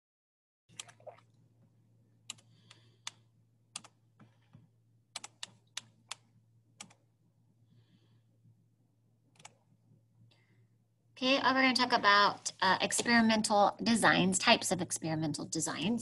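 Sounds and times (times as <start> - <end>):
low electrical hum: 0.8 - 16.0
computer mouse clicking: 2.3 - 4.4, 5.1 - 7.0, 9.3 - 9.6.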